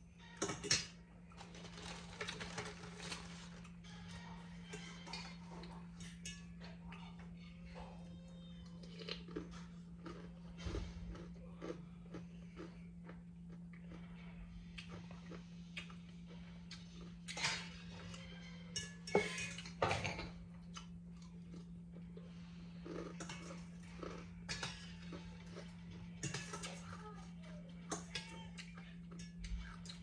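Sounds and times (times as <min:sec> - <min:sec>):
steady low hum: 0:00.0 - 0:30.0
utensils clinking on bowl: 0:00.3 - 0:03.8, 0:04.4 - 0:06.8, 0:17.0 - 0:20.5, 0:22.8 - 0:30.0
person chewing: 0:08.8 - 0:17.4, 0:20.6 - 0:25.8.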